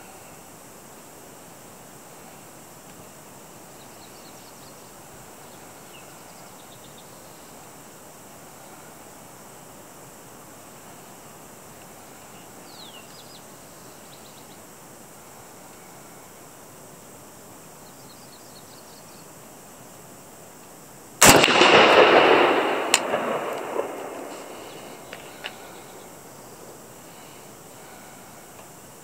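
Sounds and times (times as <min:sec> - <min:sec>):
rifle shot with long echo: 0:21.2 - 0:26.9.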